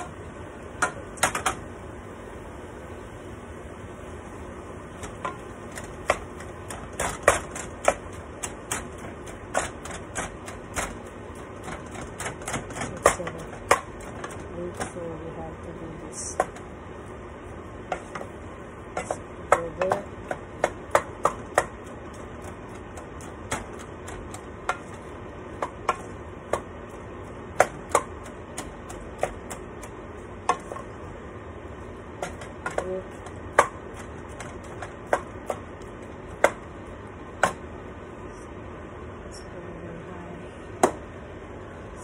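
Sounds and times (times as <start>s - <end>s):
spatula knocking and scraping pan: 4.9s - 15.1s, 17.8s - 31.0s.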